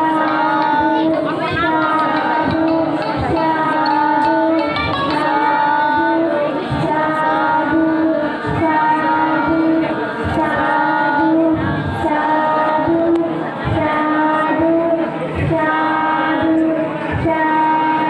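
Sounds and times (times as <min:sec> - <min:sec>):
high singing voice: 0:00.0 - 0:18.0
low beats: 0:00.0 - 0:18.0.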